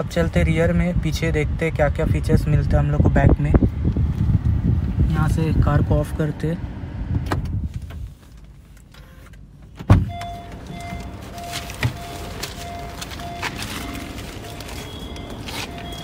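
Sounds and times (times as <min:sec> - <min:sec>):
car door thump: 0:09.8 - 0:10.6, 0:11.6 - 0:12.0
car warning chime beeping: 0:10.0 - 0:16.0.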